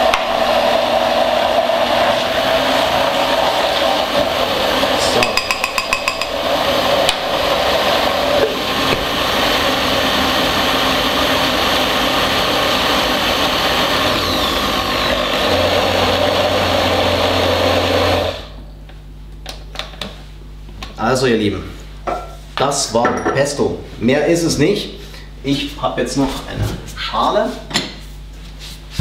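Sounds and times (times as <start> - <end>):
blender running: 0.0 - 18.6.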